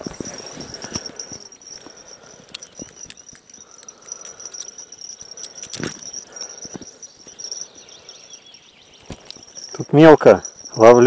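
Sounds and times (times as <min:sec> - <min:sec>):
hands rustling and clicking: 0:00.0 - 0:07.7, 0:09.0 - 0:09.8
insects chirring: 0:00.0 - 0:11.0.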